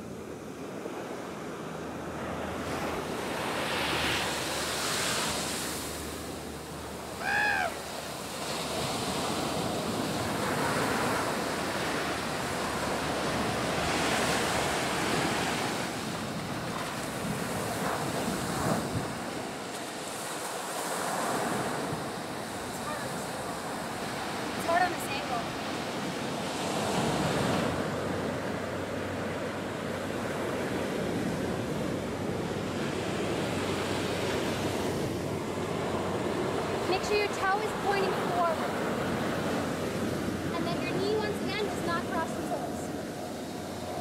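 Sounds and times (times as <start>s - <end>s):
ocean surf breaking: 0.0s - 44.0s
wind on microphone: 2.5s - 44.0s.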